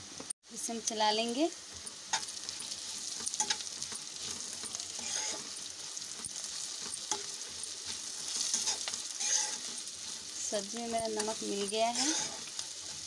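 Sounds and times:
vegetables sizzling in oil: 0.0s - 13.0s
spatula scraping and tapping pan: 3.0s - 13.0s.

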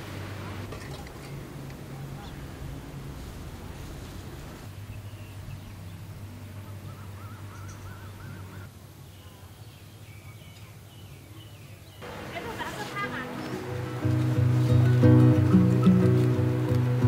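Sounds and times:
birds chirping: 4.6s - 17.0s.

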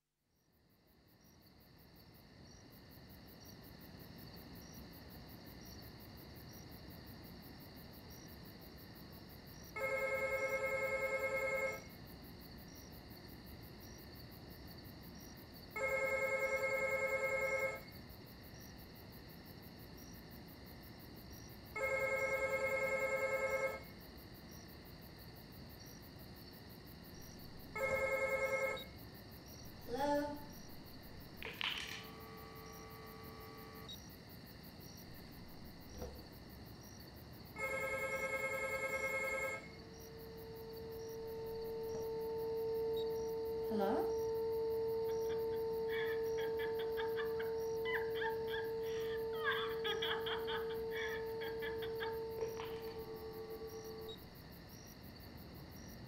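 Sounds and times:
crickets chirping: 0.3s - 56.0s
telephone ringing: 9.8s - 11.9s, 15.8s - 17.9s, 21.8s - 24.0s, 27.7s - 29.0s, 29.8s - 34.0s, 37.6s - 54.3s.

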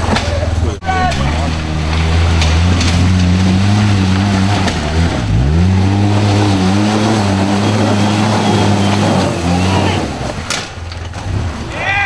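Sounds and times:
off-road vehicle engine revving: 0.0s - 11.7s.

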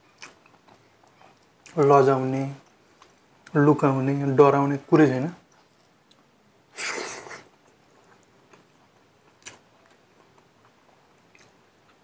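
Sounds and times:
quiet chewing: 0.0s - 1.8s, 2.6s - 3.6s, 5.4s - 6.4s, 7.2s - 12.0s.

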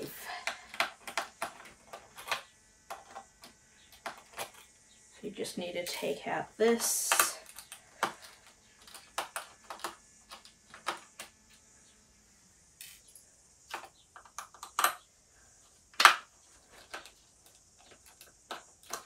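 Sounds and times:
small clicks and clatters of screws: 7.0s - 11.6s, 12.8s - 15.0s.

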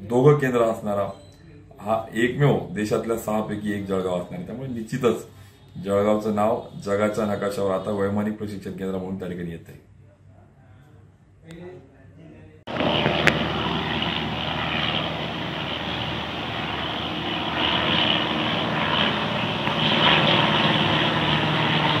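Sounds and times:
propeller aircraft droning: 12.7s - 22.0s.

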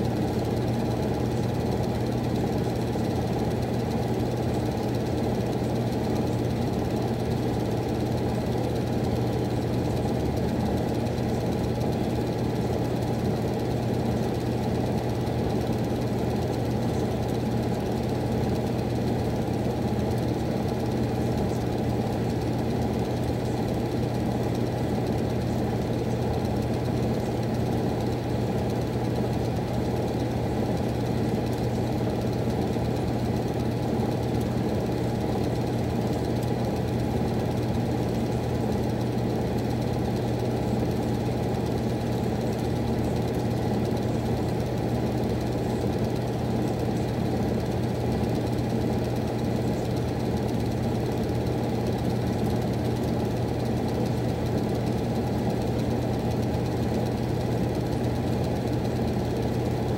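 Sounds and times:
furnace humming: 0.0s - 59.9s.

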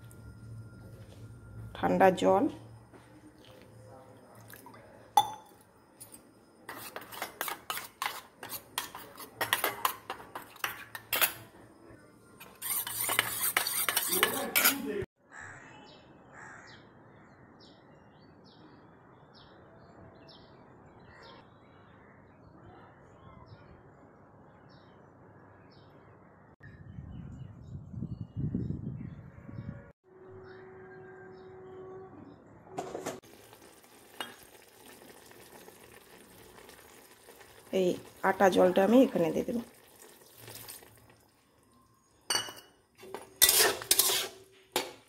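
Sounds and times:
spoon scraping steel bowl: 6.0s - 11.6s, 12.4s - 15.1s, 42.3s - 45.0s
fast whisking: 6.7s - 11.1s, 12.4s - 14.8s, 43.0s - 44.4s.

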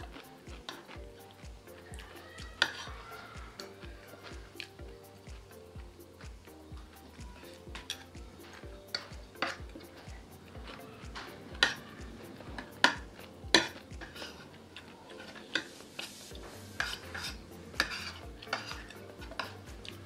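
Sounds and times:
cutlery clinking on a dish: 8.9s - 10.8s, 12.6s - 16.2s, 16.8s - 20.0s.

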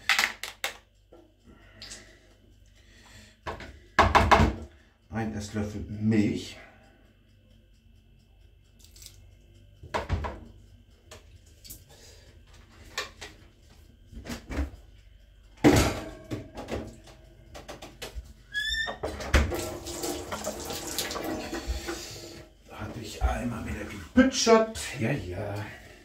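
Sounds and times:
water running from a tap: 18.7s - 22.4s.

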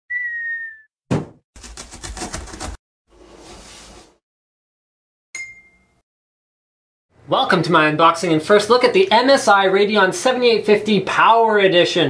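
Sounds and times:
box landing thump: 1.1s - 1.4s.

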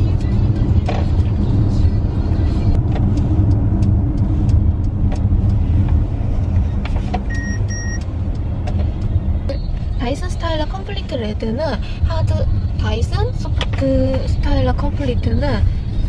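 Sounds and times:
car cabin road noise: 0.0s - 16.0s
short electronic beeps: 6.7s - 8.0s.

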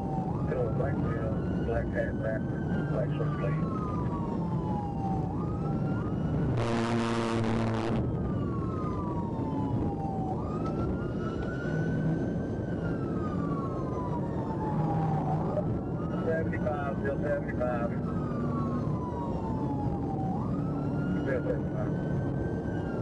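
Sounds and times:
engine and road noise: 0.0s - 23.0s
police siren wailing: 0.0s - 23.0s
loud horn blast: 6.6s - 8.0s.

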